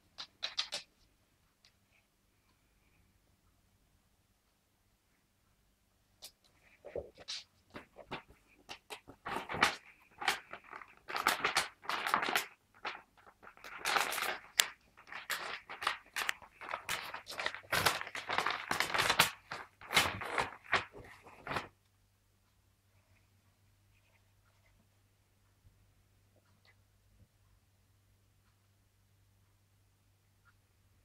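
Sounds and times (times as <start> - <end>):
paper bag rustling and crinkling: 6.9 - 21.7.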